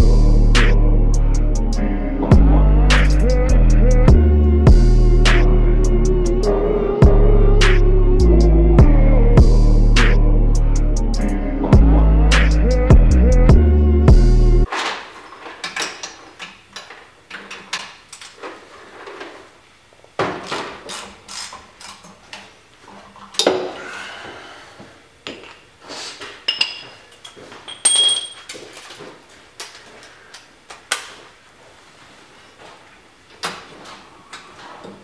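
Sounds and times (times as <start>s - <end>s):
ringing metallic clinks: 26.5s - 28.5s.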